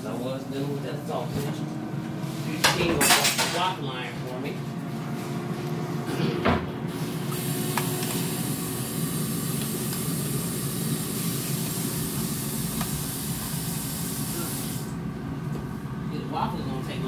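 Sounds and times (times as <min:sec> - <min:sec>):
water running from tap: 0:07.4 - 0:14.8.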